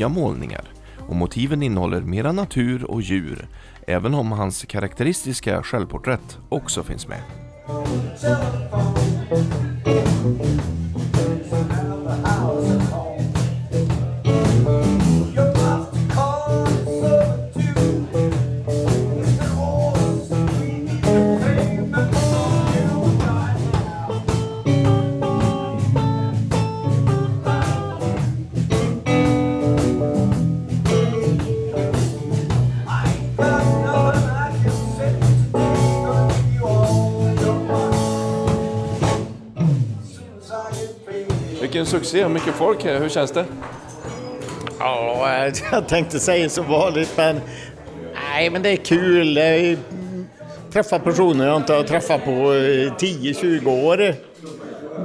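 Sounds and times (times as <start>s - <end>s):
live band with electric guitars: 7.6s - 40.0s.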